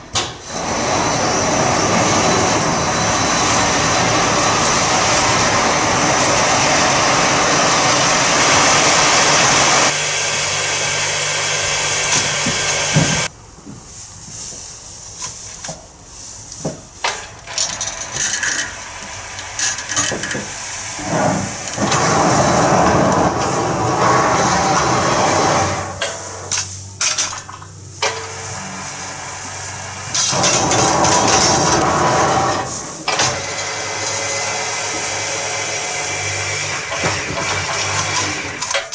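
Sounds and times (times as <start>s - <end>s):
hoist droning: 0.0s - 13.3s, 17.0s - 38.9s
hay rustling: 13.8s - 17.0s.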